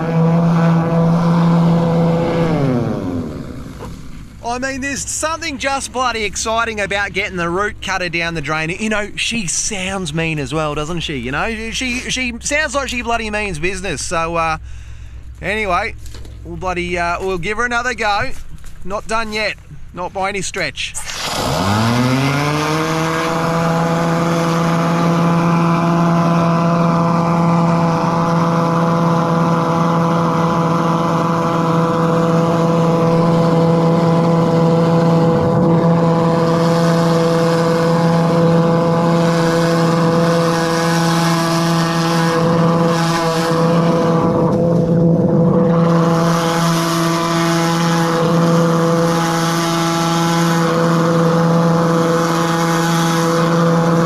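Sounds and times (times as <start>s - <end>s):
drain jetter engine and pump running: 21.0s - 54.0s.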